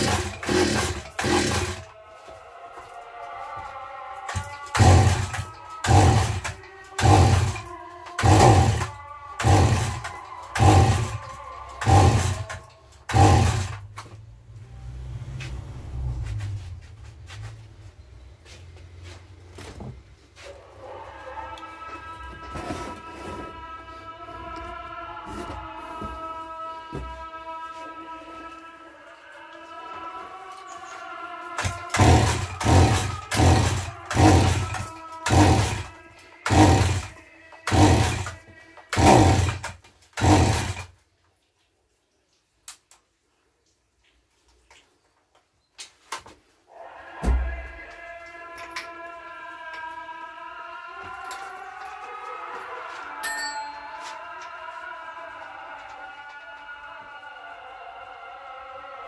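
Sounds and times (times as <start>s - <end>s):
chainsaw engine revving: 0.0s - 1.9s, 4.3s - 14.0s, 31.6s - 40.9s
music: 0.0s - 17.6s, 20.6s - 39.7s.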